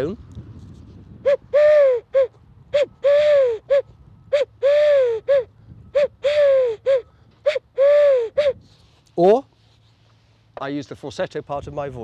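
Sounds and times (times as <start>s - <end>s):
dove whistle cooing: 1.2s - 8.7s.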